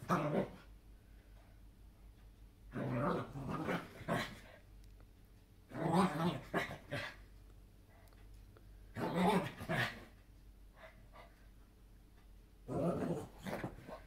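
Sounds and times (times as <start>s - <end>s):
small dog growling and barking: 0.0s - 0.7s, 2.7s - 4.6s, 5.7s - 7.2s, 8.9s - 10.2s, 12.6s - 14.0s.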